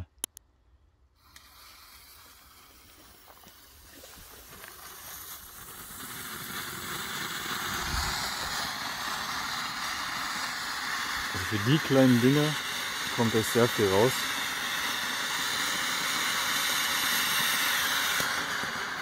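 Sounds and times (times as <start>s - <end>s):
firework fountain hissing: 1.2s - 19.0s.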